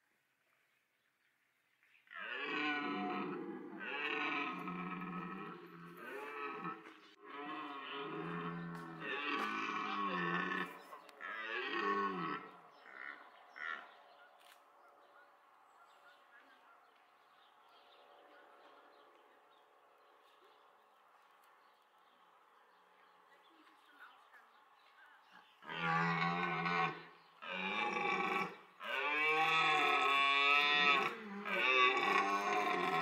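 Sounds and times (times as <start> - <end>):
deer stags roaring: 2.1 - 14.0, 25.6 - 33.0
deer grunts: 2.2 - 14.0, 29.2 - 33.0.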